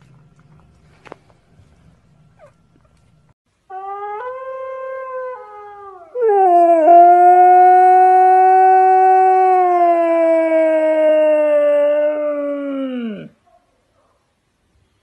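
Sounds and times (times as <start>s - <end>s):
howl played on a phone: 3.7s - 13.3s
dog howling: 3.7s - 13.4s.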